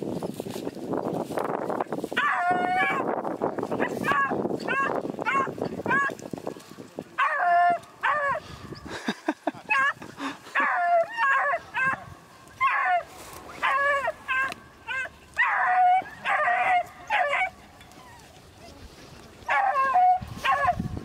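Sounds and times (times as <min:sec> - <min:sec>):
hounds baying: 0:02.2 - 0:03.1, 0:03.7 - 0:06.2, 0:07.2 - 0:08.8, 0:09.7 - 0:18.4, 0:19.5 - 0:21.0.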